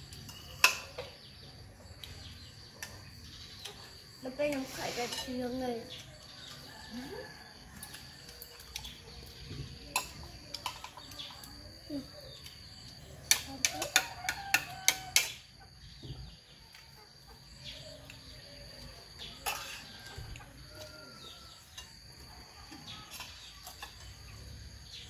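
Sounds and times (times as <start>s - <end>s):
metal spoon clinking on a dish: 0.1s - 1.2s, 9.9s - 11.4s, 19.4s - 20.1s.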